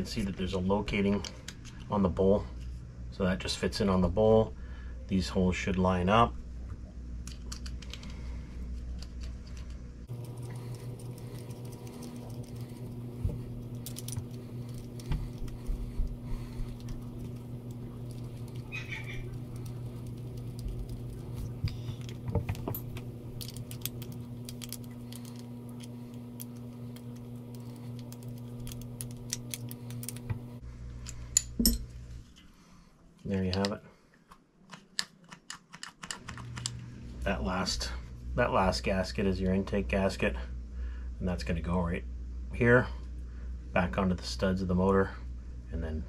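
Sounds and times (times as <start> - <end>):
steady low hum: 0.0 - 34.0, 36.2 - 46.0
small metal parts clicking and rattling: 7.3 - 30.3.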